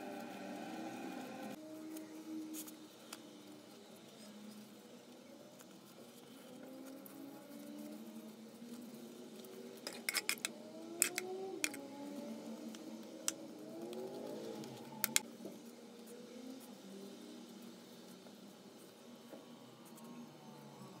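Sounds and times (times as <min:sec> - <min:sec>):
faint sliding pitched tones: 0:00.0 - 0:02.4.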